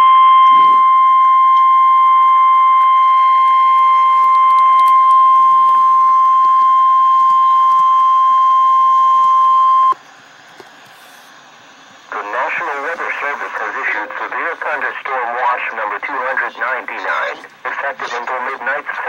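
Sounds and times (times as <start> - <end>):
steady single-pitch alarm tone: 0.0 - 10.0.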